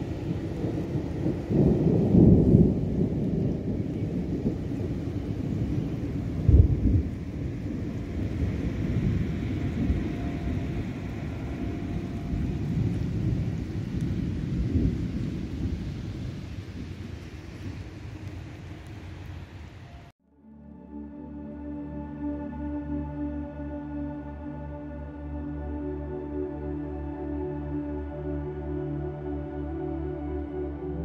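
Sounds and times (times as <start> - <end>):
thunder rumbling: 0.0 - 20.1.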